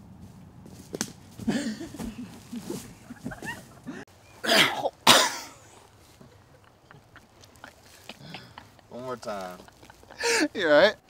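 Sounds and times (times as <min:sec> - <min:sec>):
harsh coughs: 0:04.4 - 0:05.6.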